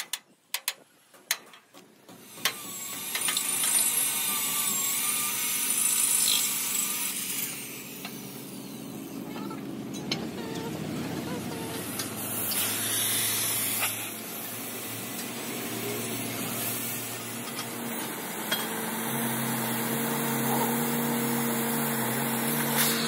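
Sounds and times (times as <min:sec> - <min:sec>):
low machinery hum: 0:07.1 - 0:23.0
machinery hiss: 0:12.0 - 0:17.4.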